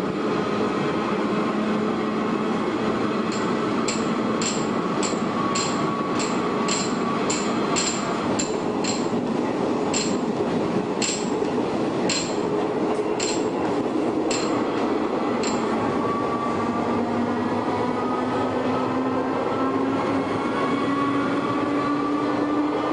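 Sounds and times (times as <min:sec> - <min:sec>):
electric train rumble: 0:00.0 - 0:22.9.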